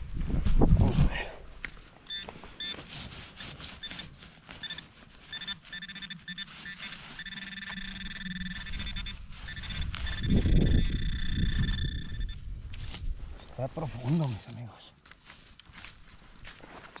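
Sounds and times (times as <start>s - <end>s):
metal detector high electronic tone: 2.1s - 13.0s.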